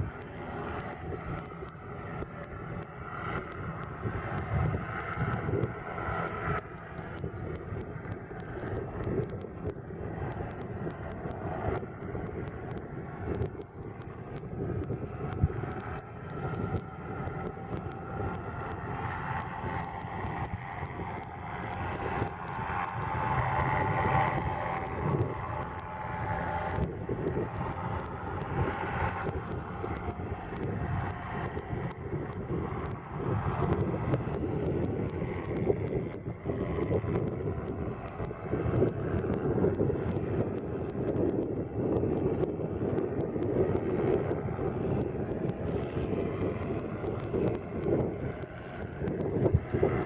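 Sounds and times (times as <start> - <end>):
hovercraft engine and fan droning: 0.0 - 50.0
wind buffeting microphone: 0.0 - 50.0.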